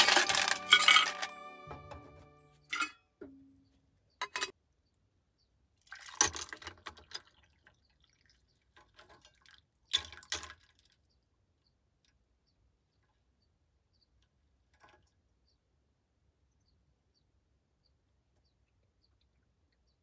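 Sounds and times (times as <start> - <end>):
small hard objects clinking: 0.0 - 2.0.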